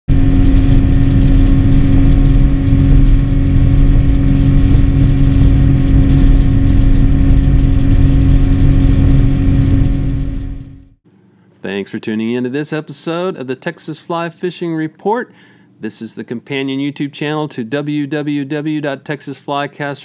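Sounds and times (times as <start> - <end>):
outboard motor running: 0.1 - 11.0.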